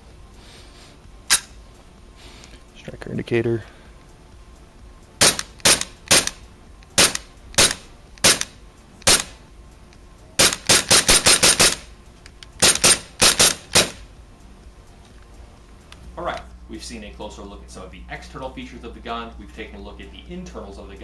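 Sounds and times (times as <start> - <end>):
airsoft pistol shots: 5.2 - 6.4, 7.0 - 9.4, 10.4 - 11.9, 12.6 - 14.1.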